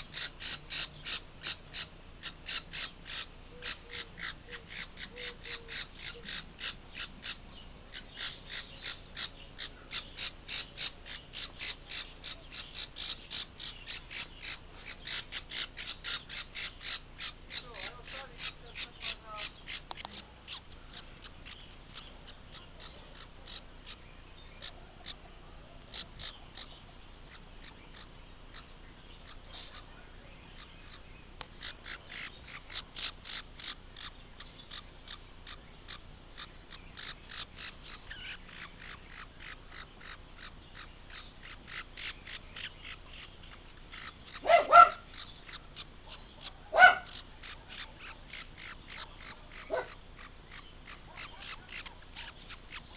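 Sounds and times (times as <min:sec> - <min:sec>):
parrot chick peeping: 0:00.0 - 0:52.9
parrot squawks: 0:43.9 - 0:52.9.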